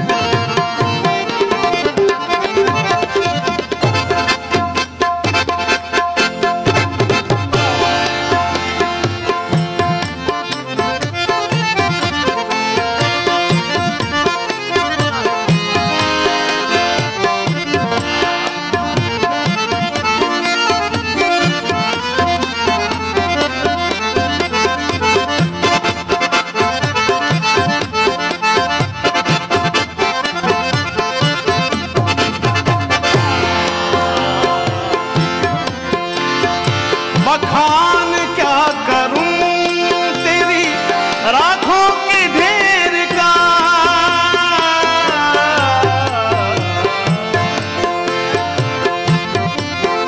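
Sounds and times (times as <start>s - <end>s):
fast tabla rhythm: 0.0s - 50.0s
harmonium melody: 0.0s - 50.0s.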